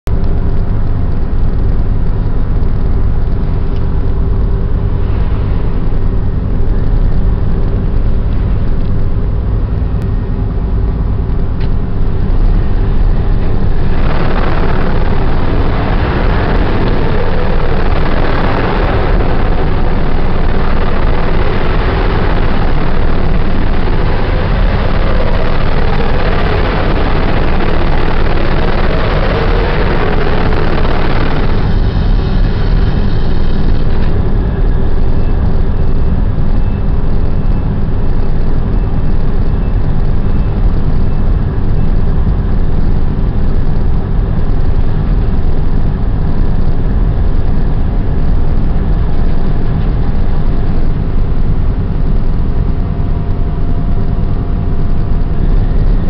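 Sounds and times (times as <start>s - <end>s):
ship machinery drone: 0.1s - 56.0s
rushing noise: 9.2s - 39.5s, 47.3s - 56.0s.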